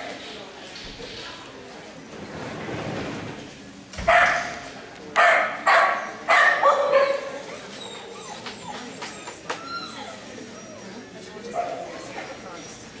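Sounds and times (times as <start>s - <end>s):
dog barking: 4.1s - 4.6s, 5.2s - 7.3s.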